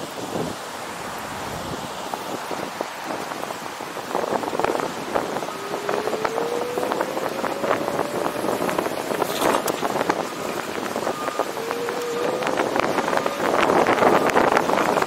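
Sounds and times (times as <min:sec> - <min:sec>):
wind buffeting microphone: 0:00.0 - 0:15.0
faint rising whine: 0:04.6 - 0:15.0
dense crackle and sharp clicks: 0:05.4 - 0:15.0.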